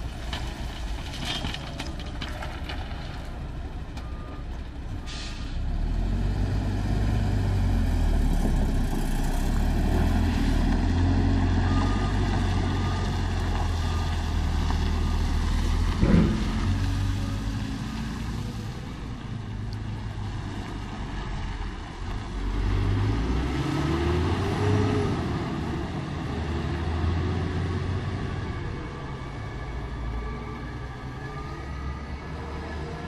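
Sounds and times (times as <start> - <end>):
heavy diesel engines running: 1.6 - 33.0
engine revving: 5.6 - 18.9, 22.3 - 33.0.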